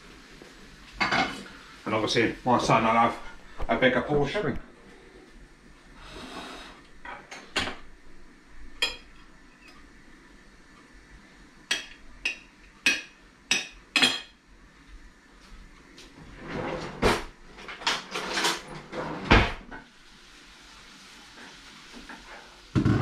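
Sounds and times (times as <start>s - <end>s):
kitchen clatter and knocks: 16.5s - 19.9s, 22.7s - 23.0s.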